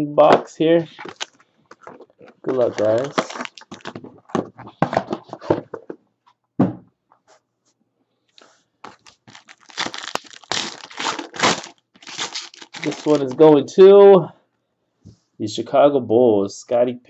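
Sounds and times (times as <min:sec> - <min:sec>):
plastic and foil wrapping tearing: 0:01.0 - 0:04.2, 0:08.9 - 0:13.5
knock: 0:06.6 - 0:06.9.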